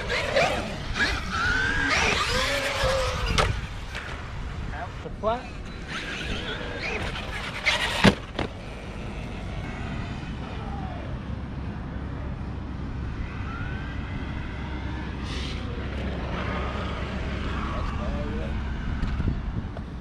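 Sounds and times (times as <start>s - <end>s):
electric motor whining: 0.0s - 4.0s.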